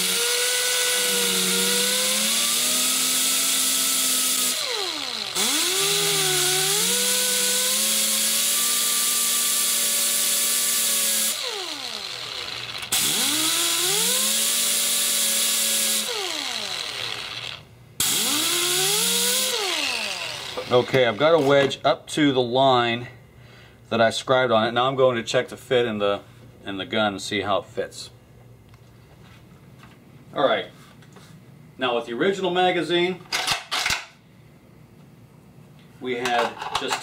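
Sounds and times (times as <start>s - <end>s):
grinder motor winding down: 0.0s - 21.4s
angle grinder grinding metal: 0.0s - 21.6s.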